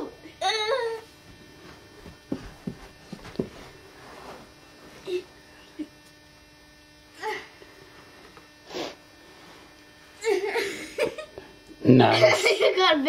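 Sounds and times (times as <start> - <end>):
faint electrical hum: 0.0 - 13.0
soft bumps and shuffles: 1.3 - 5.1.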